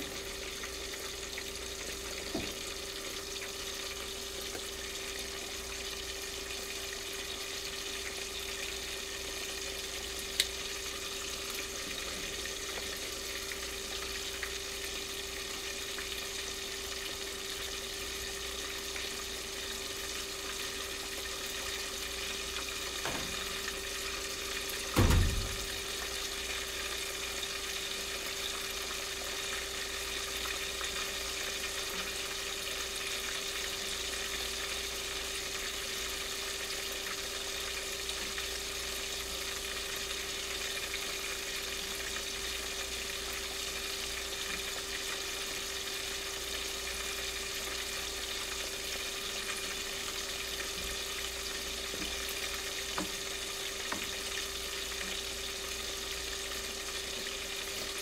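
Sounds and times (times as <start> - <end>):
hot oil sizzling: 0.0 - 58.0
short dull thump: 25.0 - 25.6.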